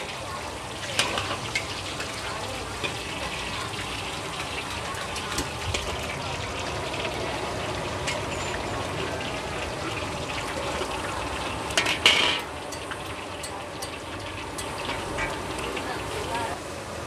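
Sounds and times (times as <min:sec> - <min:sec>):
oil sizzling in a wok: 0:00.0 - 0:17.0
metal spatulas scraping a wok: 0:11.7 - 0:15.9.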